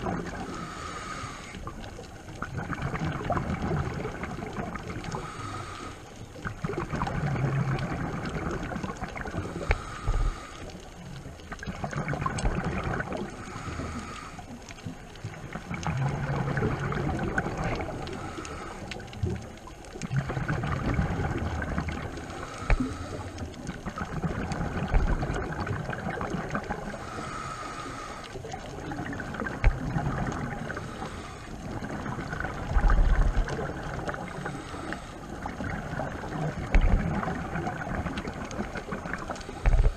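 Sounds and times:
bubbling exhale: 0:00.0 - 0:39.9
regulator hissing inhale: 0:00.4 - 0:01.8, 0:05.1 - 0:06.4, 0:09.4 - 0:11.0, 0:13.3 - 0:14.6, 0:17.9 - 0:19.2, 0:22.1 - 0:23.6, 0:26.9 - 0:28.6, 0:30.7 - 0:31.7, 0:33.8 - 0:35.5, 0:39.4 - 0:39.9.

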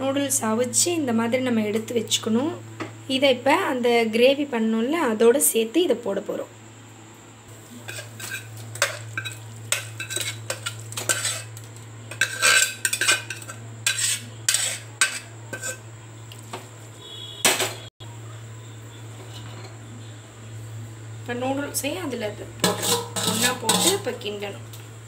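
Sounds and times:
steady low hum: 0:00.0 - 0:25.0
spoon scraping a metal pot: 0:07.8 - 0:15.9, 0:22.6 - 0:24.2.

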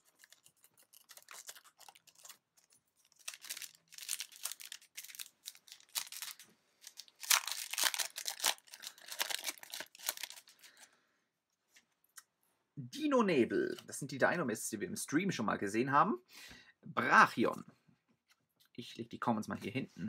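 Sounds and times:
foil wrapper crinkling: 0:00.0 - 0:10.9.

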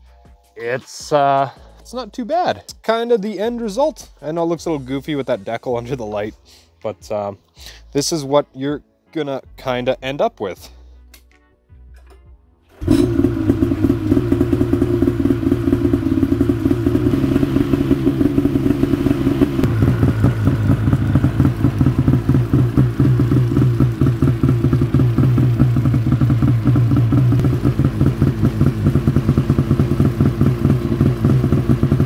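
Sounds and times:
snowmobile engine idling: 0:12.8 - 0:32.0.

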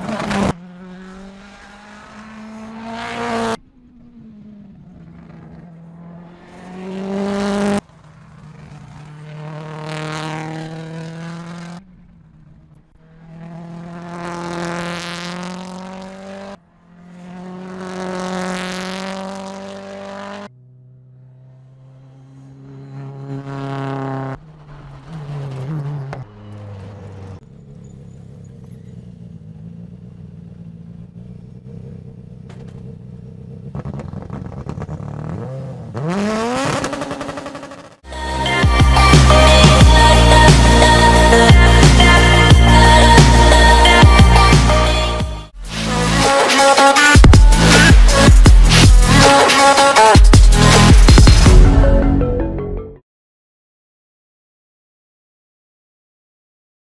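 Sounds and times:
rally car engine revving past: 0:00.0 - 0:27.4.

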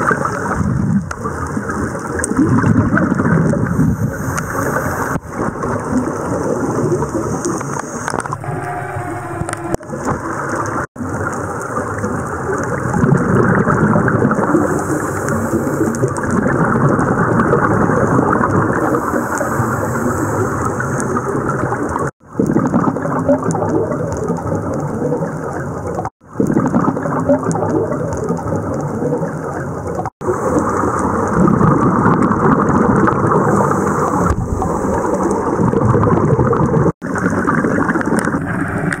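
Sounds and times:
underwater rumbling and crackling: 0:00.0 - 0:39.0.

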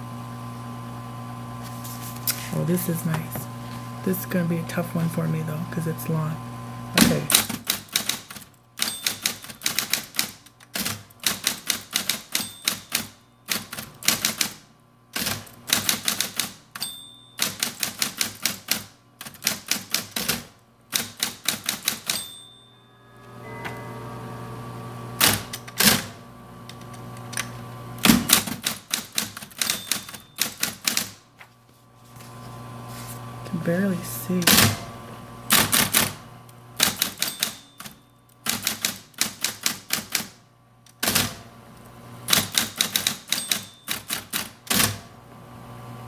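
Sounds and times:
typewriter motor hum: 0:06.9 - 0:22.3, 0:25.1 - 0:31.2, 0:34.3 - 0:45.1
typewriter key strikes: 0:07.3 - 0:14.6, 0:15.2 - 0:20.4, 0:21.0 - 0:22.5, 0:28.0 - 0:31.2, 0:36.8 - 0:40.3, 0:42.3 - 0:45.1.

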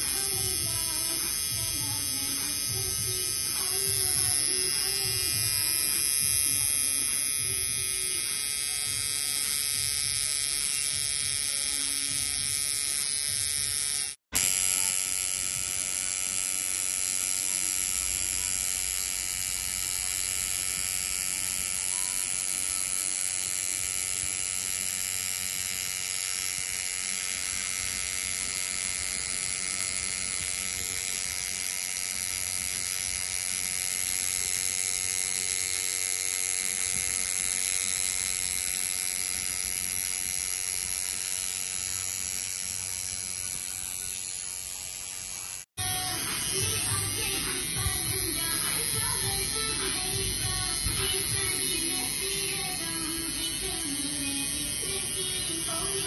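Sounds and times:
tattoo machine buzzing: 0:00.0 - 0:56.0.

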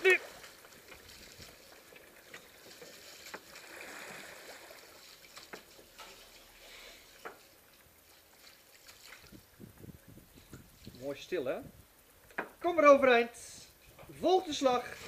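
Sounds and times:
water lapping on boat hull: 0:00.0 - 0:11.0.

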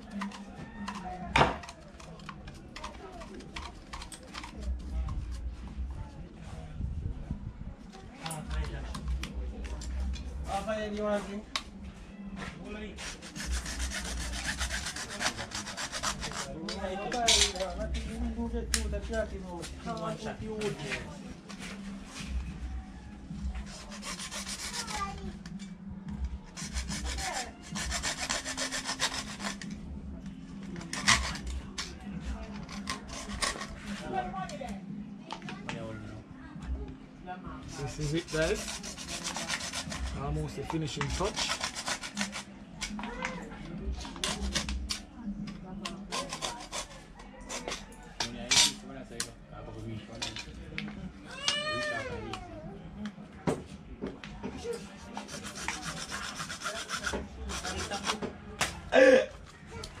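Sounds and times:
hacksaw cutting plastic pipe: 0:26.6 - 0:29.8, 0:30.8 - 0:31.5, 0:32.6 - 0:33.7, 0:41.0 - 0:43.0, 0:45.9 - 0:47.0.

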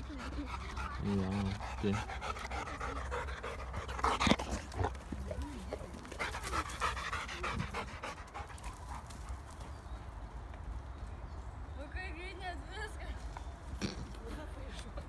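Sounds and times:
dog panting: 0:00.0 - 0:09.8.

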